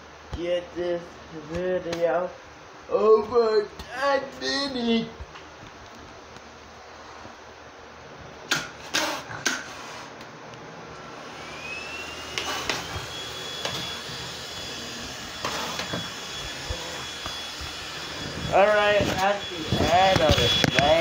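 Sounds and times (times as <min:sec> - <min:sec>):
vacuum cleaner running: 0:10.8 - 0:21.0
high-pitched whine: 0:10.9 - 0:21.0.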